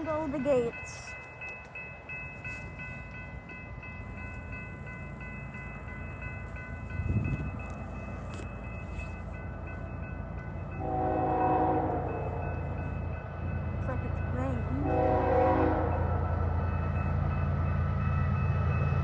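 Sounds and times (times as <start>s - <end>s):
crossing warning bell ringing: 0.0s - 19.0s
locomotive horn: 10.8s - 12.4s, 14.8s - 16.1s.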